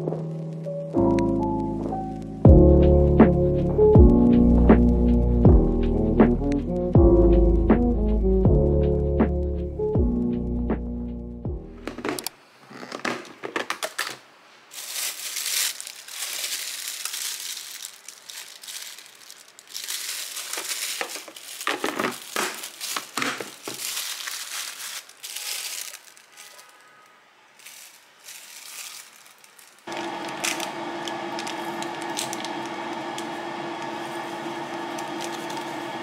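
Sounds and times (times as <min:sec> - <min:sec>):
plastic bags crinkling: 0:11.8 - 0:36.0.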